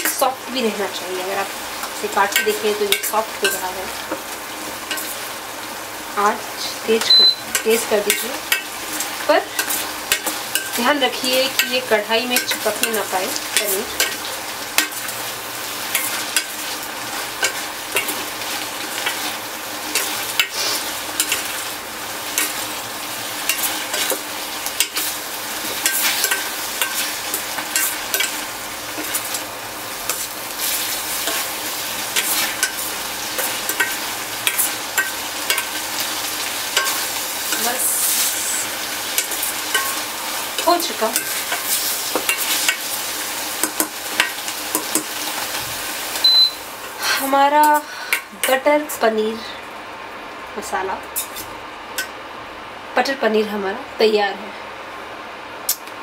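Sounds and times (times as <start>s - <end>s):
gravy sizzling in a pan: 0.0s - 52.6s
steel spoon scraping pan: 17.4s - 21.6s, 25.7s - 29.4s, 30.1s - 36.0s, 36.7s - 38.5s, 39.1s - 42.9s.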